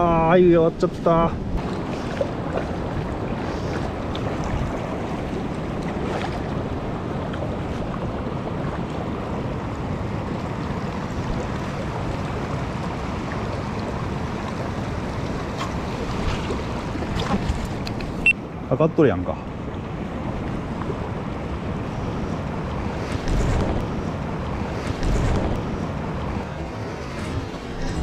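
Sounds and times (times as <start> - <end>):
river flowing over stones: 0.0 - 18.2
wind rumble on microphone: 0.0 - 18.6, 19.4 - 28.0.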